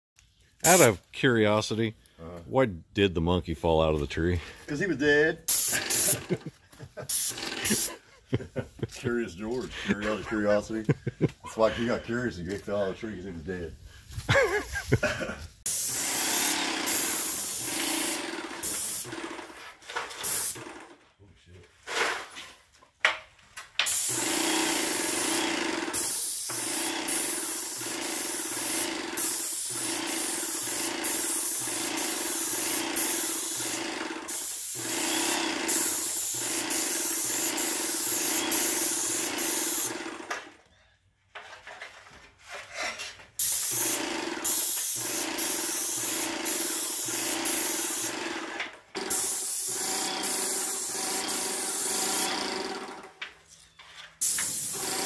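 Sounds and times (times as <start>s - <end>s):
paint sprayer hiss: 5.5s - 6.4s, 7.0s - 8.0s, 15.6s - 19.1s, 20.2s - 20.6s, 23.8s - 40.0s, 43.4s - 48.2s, 49.0s - 52.6s, 54.2s - 55.0s.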